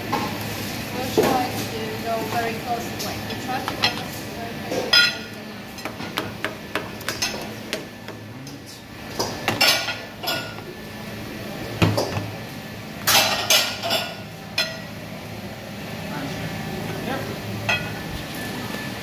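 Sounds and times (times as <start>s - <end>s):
dishes and utensils clattering: 2.3s - 6.2s, 9.1s - 10.6s, 13.0s - 14.9s, 17.6s - 18.0s.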